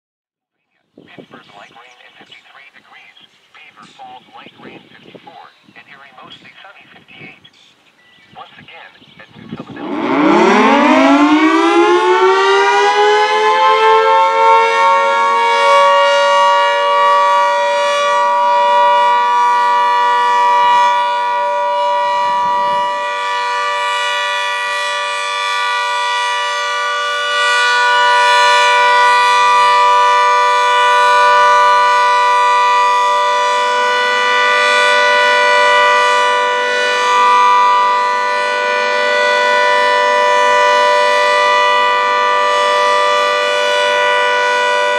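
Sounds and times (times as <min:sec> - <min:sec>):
two-tone siren winding up: 0:09.8 - 0:44.9.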